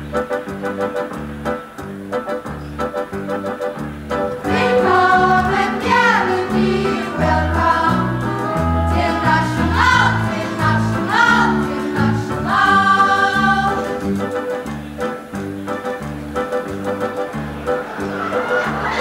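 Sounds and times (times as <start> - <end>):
band accompaniment: 0.0 - 19.0
chorus singing: 4.2 - 14.7, 17.2 - 19.0.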